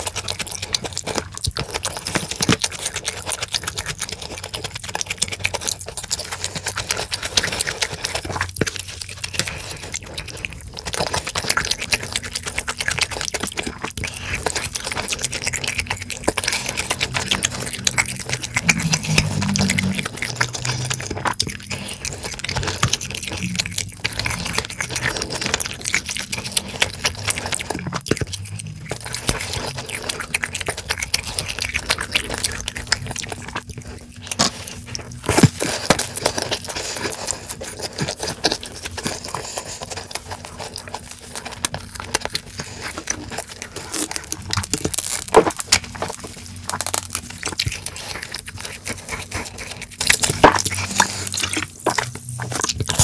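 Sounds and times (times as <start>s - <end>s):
chewing and crunching food: 0.0s - 53.0s
chopsticks scraping bowl: 14.4s - 30.2s, 47.9s - 53.0s.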